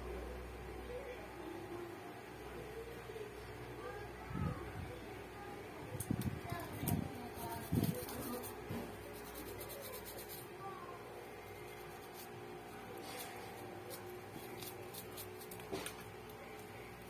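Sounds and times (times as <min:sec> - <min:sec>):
toothbrush bristles scrubbing: 0:07.3 - 0:10.5, 0:11.5 - 0:12.4.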